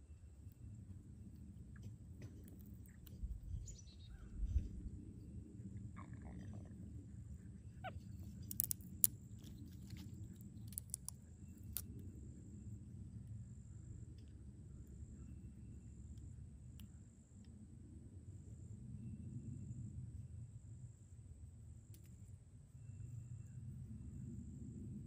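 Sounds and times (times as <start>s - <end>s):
low rumble: 0.0s - 14.0s
monkey gnawing pine cone: 1.4s - 3.5s, 7.8s - 11.9s.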